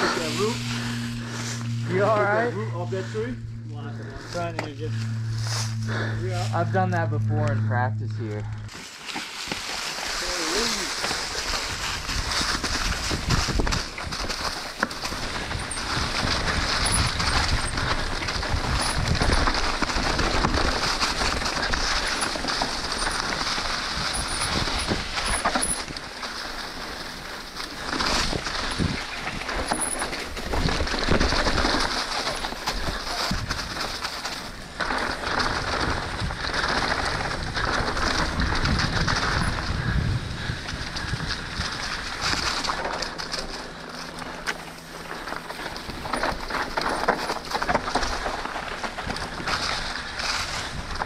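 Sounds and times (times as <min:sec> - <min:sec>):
bike rattle: 0:00.0 - 0:51.0
tyre noise on dirt and leaves: 0:00.0 - 0:51.0
wind on microphone: 0:11.5 - 0:14.4, 0:35.6 - 0:42.4.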